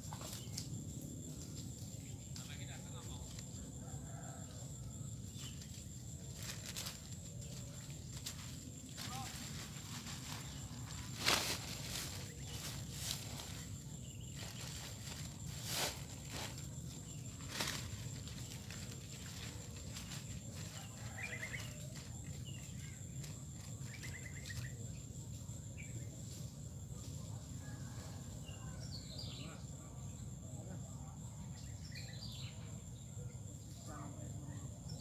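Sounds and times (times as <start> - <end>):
footsteps through dry leaves: 6.2 - 24.7.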